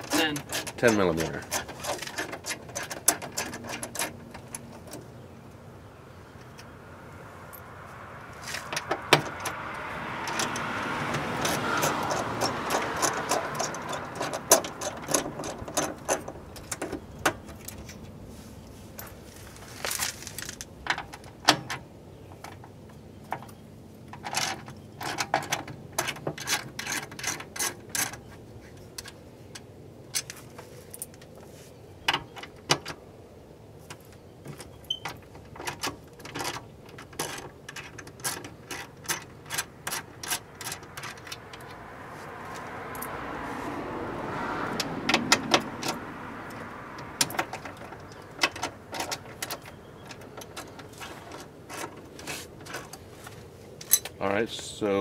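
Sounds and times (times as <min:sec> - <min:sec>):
metallic clinks of tool and bolts: 0:53.8 - 0:54.2.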